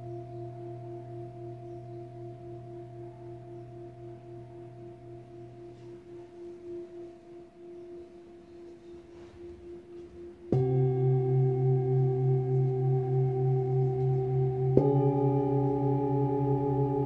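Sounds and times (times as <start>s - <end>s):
singing bowl ringing: 0.0s - 17.0s
singing bowl struck with mallet: 10.5s - 17.0s.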